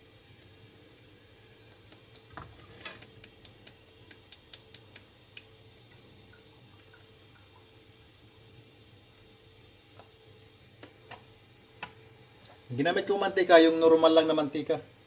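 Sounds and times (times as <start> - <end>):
faint dripping ticks and plops: 1.6 - 12.7.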